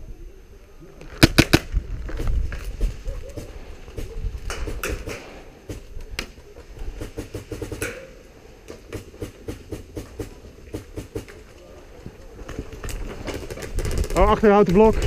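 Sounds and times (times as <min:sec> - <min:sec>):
quick ticking gunshots: 0:01.2 - 0:01.7, 0:03.4 - 0:05.9, 0:07.0 - 0:08.1, 0:08.9 - 0:11.3.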